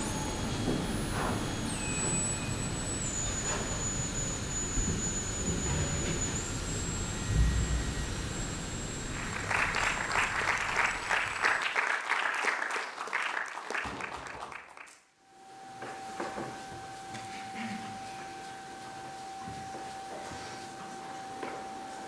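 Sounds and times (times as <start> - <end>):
faint steady high tone: 0.0 - 11.6, 15.3 - 22.0
audience applauding: 9.1 - 15.0.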